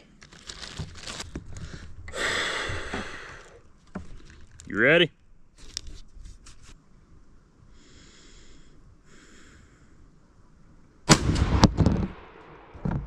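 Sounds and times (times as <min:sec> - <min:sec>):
shotgun blast: 0:11.1 - 0:12.8.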